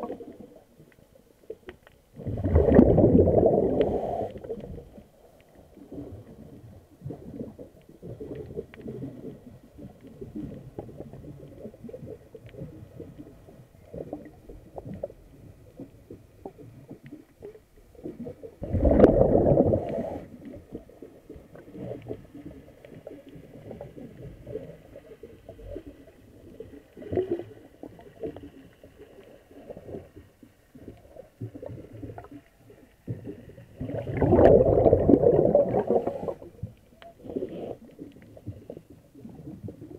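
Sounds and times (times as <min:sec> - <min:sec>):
crackling water noise: 0:00.0 - 0:39.9
exhaled breath bubbles underwater: 0:02.1 - 0:05.1, 0:05.8 - 0:28.4, 0:30.8 - 0:39.9.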